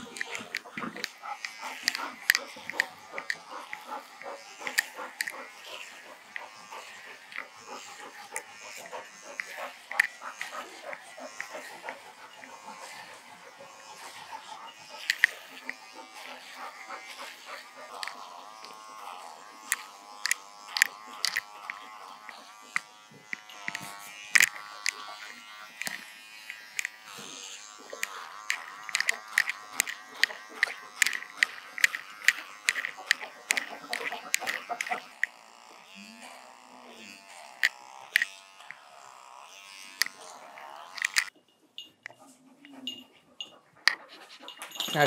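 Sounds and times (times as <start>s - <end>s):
sharp clicks: 0.0s - 12.8s, 14.0s - 35.4s, 39.6s - 41.3s
electric hair trimmer buzzing: 0.0s - 45.0s.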